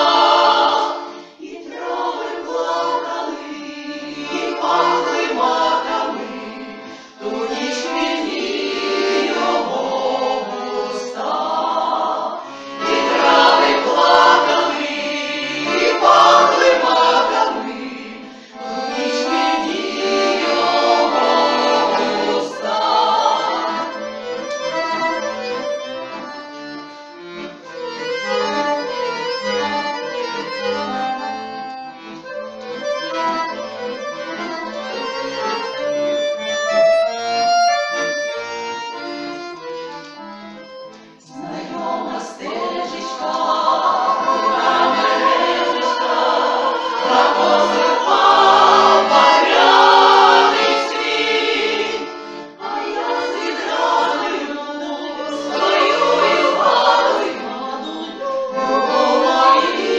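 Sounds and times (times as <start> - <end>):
women's choir singing: 0.0 - 24.6, 41.2 - 59.9
accordion: 0.0 - 59.9.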